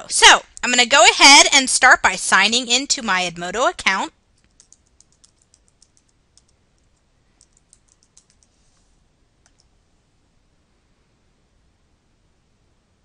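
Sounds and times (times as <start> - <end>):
faint room noise: 0.0 - 13.0
keyboard keystrokes: 4.4 - 8.5.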